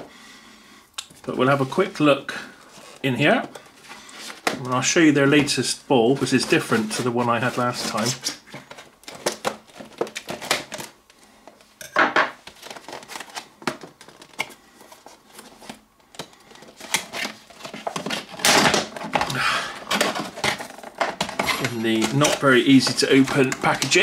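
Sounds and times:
plastic packaging crackling: 0:01.1 - 0:11.7, 0:12.4 - 0:24.0
knife cutting plastic: 0:06.2 - 0:10.9, 0:15.6 - 0:24.0.

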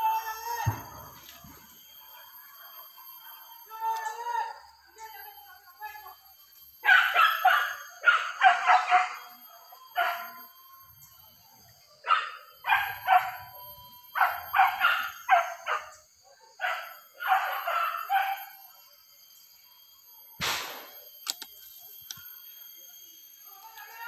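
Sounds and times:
dogs barking: 0:06.8 - 0:09.3, 0:12.0 - 0:13.5, 0:14.2 - 0:18.5.

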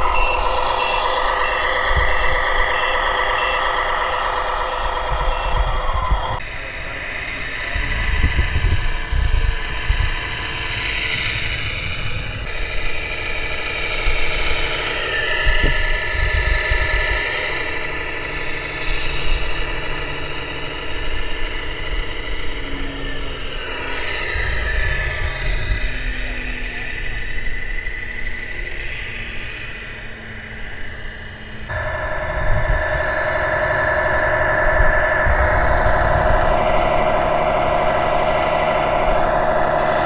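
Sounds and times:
stronger whine: 0:00.0 - 0:40.0
uneven low rumble: 0:00.0 - 0:40.0
model truck engine whining: 0:29.4 - 0:40.0.

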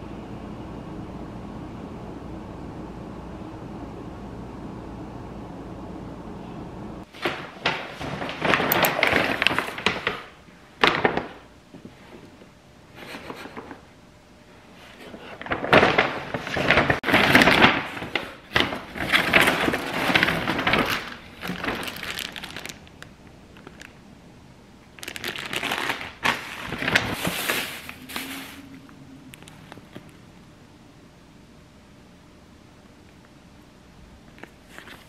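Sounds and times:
objects rustling and clattering: 0:07.1 - 0:12.4, 0:14.8 - 0:22.9, 0:25.0 - 0:28.8.

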